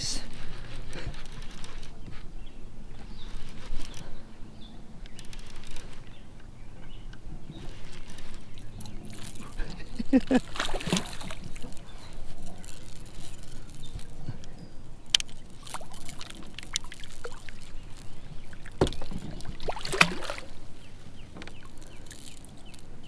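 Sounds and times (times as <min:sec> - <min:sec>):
water sloshing and splashing: 0:07.6 - 0:14.4, 0:15.1 - 0:23.0.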